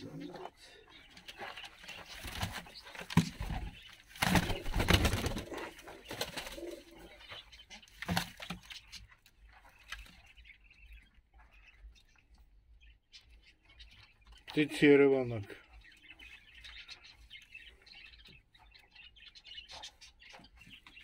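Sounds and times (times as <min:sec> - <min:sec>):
pigeons cooing: 0:00.0 - 0:08.6.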